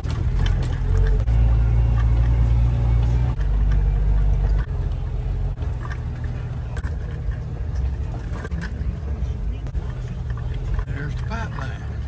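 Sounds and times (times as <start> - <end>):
vehicle engine rumble: 0.0 - 12.0.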